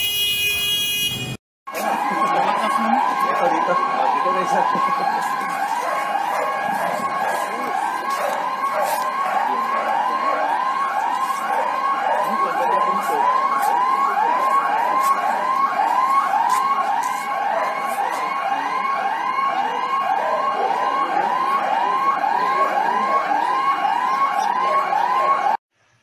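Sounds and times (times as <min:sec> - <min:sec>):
electronic alarm siren whooping: 0:01.7 - 0:25.6.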